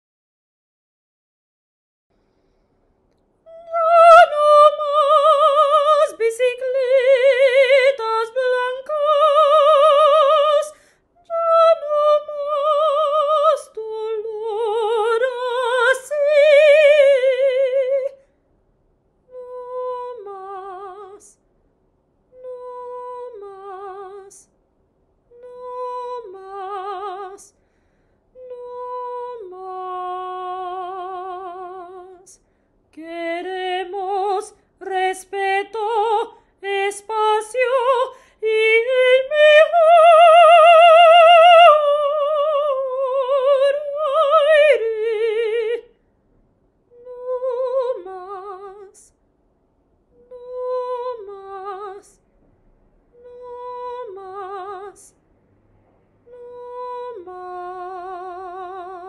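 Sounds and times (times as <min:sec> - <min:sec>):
woman singing operatically: 0:03.5 - 0:18.2, 0:19.3 - 0:21.3, 0:22.4 - 0:24.4, 0:25.4 - 0:27.5, 0:28.4 - 0:32.4, 0:33.0 - 0:45.9, 0:47.0 - 0:49.1, 0:50.2 - 0:52.2, 0:53.2 - 0:55.1, 0:56.3 - 0:59.0.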